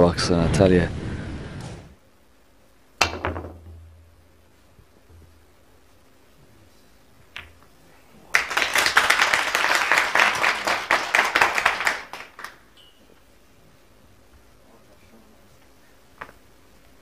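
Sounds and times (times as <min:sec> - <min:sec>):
snooker balls clicking: 0:03.0 - 0:03.8, 0:07.3 - 0:07.7
audience applauding: 0:08.3 - 0:12.6.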